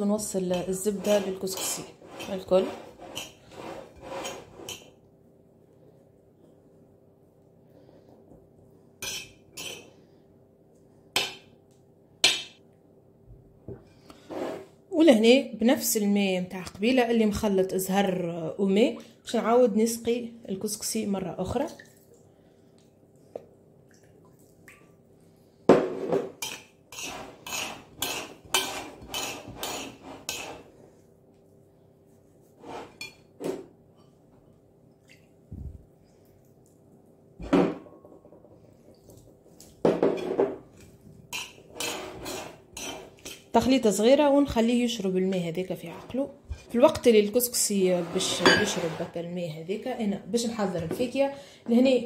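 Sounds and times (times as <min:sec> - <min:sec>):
metal spoon scraping ceramic plate: 0:00.4 - 0:04.9, 0:09.0 - 0:10.0, 0:26.4 - 0:30.8, 0:32.6 - 0:33.3, 0:41.3 - 0:43.5, 0:47.8 - 0:49.2.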